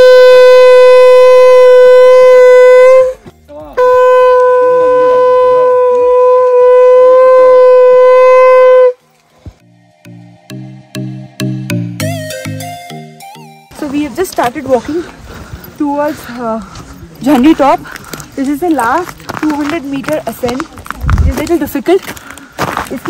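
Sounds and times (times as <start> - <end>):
conch shell blasts: 0.0 - 9.0.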